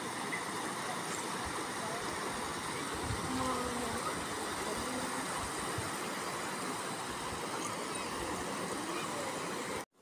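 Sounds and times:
stream rushing over rocks: 0.0s - 10.0s.

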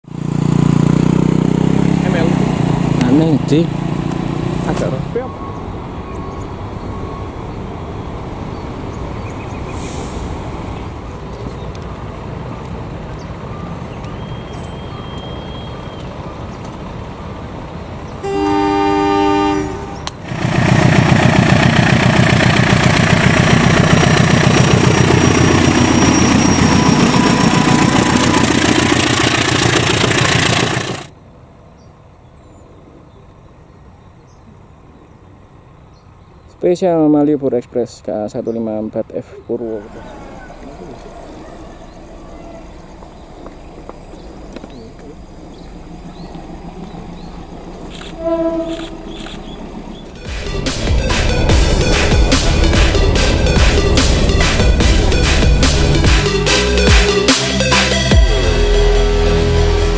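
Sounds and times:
diesel locomotive rumble: 0.0s - 31.2s, 39.4s - 59.9s
train horn blast: 18.2s - 20.2s, 48.1s - 49.2s, 50.2s - 59.9s.

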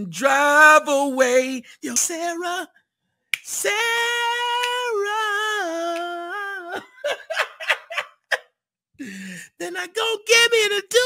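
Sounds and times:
man singing unaccompanied: 0.0s - 2.8s, 3.4s - 7.5s, 9.4s - 11.0s.

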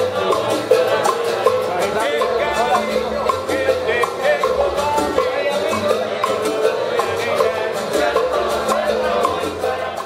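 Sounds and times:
acoustic guitars: 0.0s - 10.0s
people singing: 0.0s - 10.0s
percussive beat: 0.0s - 10.0s
upright double bass: 0.0s - 10.0s.

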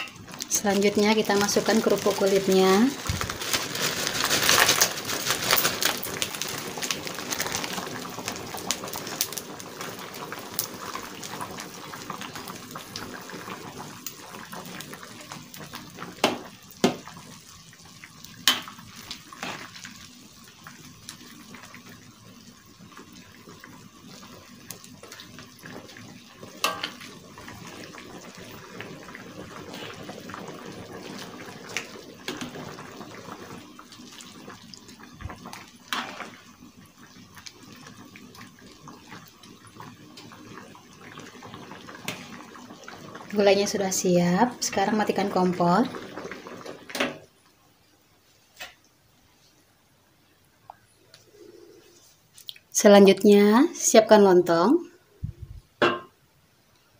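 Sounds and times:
curry bubbling in a wok: 0.0s - 56.9s
crackers crackling: 1.1s - 12.6s.

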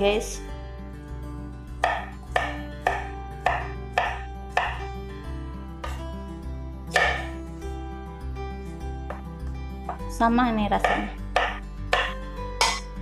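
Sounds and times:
knife chopping on wooden board: 1.8s - 4.9s, 5.8s - 6.0s, 6.9s - 7.3s, 10.8s - 12.9s.

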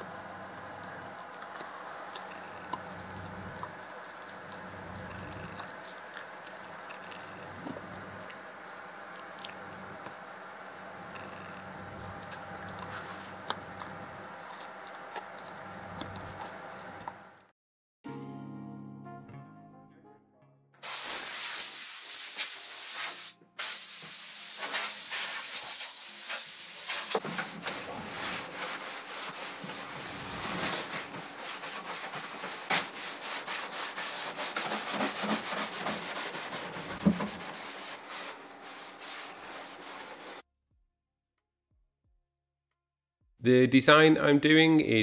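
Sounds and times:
compressed air hissing: 20.8s - 27.2s
cloth rubbing over wood: 26.8s - 40.4s.

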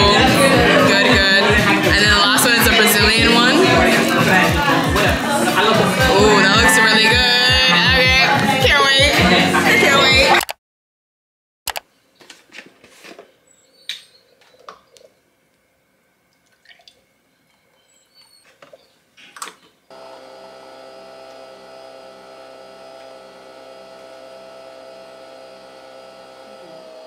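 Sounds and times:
coffee machine humming: 0.0s - 10.3s, 19.9s - 27.0s.

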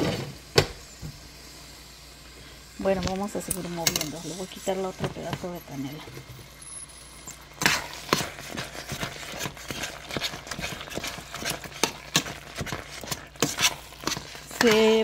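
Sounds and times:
metal spoon scraping pot: 7.6s - 15.0s.

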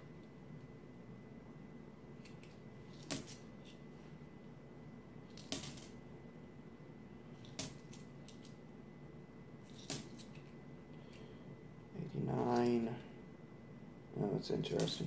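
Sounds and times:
low room hum: 0.0s - 15.0s
coins clinking: 5.3s - 6.0s, 9.7s - 10.4s.

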